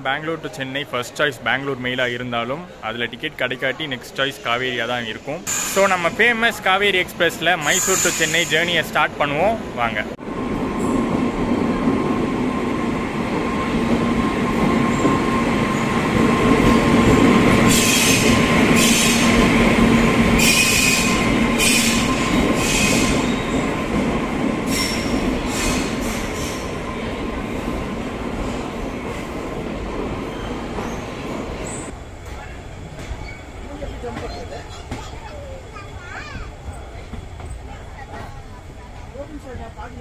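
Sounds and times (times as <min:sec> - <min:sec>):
train coaches rumbling: 0:00.0 - 0:40.0
locomotive humming: 0:05.1 - 0:40.0
wheel and brake screeches: 0:07.6 - 0:08.8.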